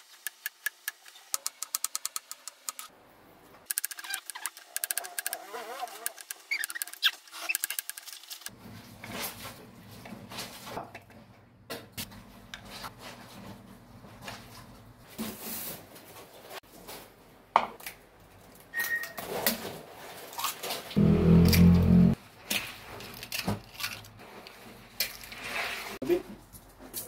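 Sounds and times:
low steady hum: 21.0 - 22.2.

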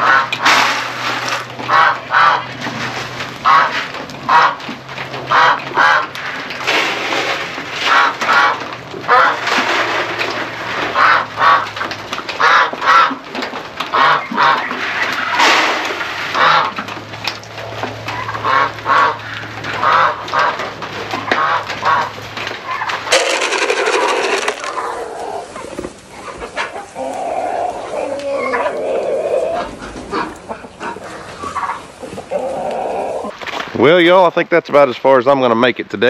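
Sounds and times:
poultry calling: 0.0 - 2.7, 3.4 - 6.3, 7.8 - 9.6, 10.9 - 11.8, 12.4 - 13.2, 13.9 - 15.6, 16.3 - 16.8, 17.6 - 23.2, 24.0 - 33.4.

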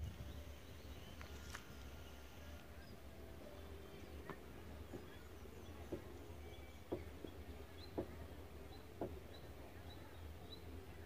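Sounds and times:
faint high bird chirps: 0.2 - 8.1.

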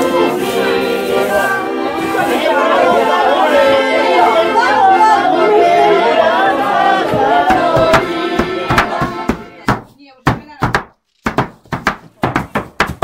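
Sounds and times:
voices: 0.0 - 10.7
music: 0.0 - 13.0
sharp knocks: 7.1 - 13.0.

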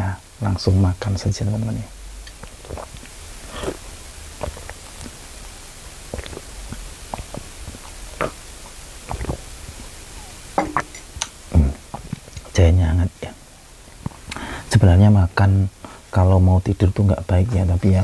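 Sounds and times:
man sipping and swallowing: 2.2 - 5.4, 6.0 - 12.5.

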